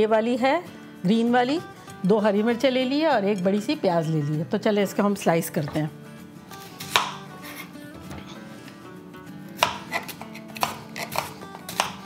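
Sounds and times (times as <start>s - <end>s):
knife chopping onion on board: 6.8s - 8.3s, 9.6s - 12.0s.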